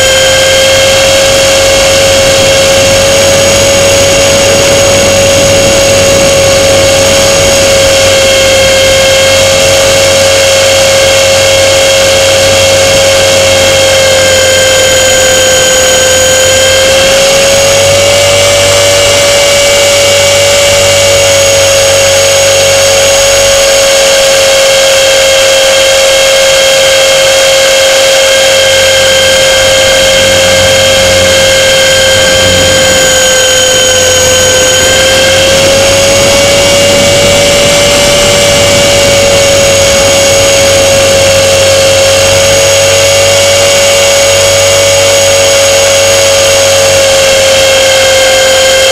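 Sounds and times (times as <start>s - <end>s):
model plane motor whine: 0.0s - 48.9s.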